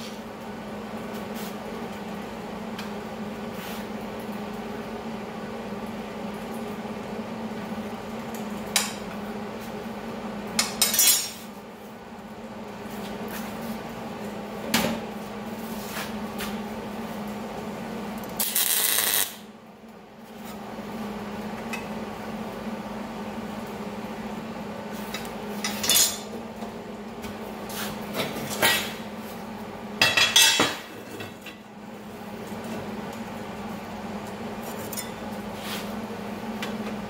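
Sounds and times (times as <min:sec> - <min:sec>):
metal bars clinking on steel table: 0:10.8 - 0:11.4.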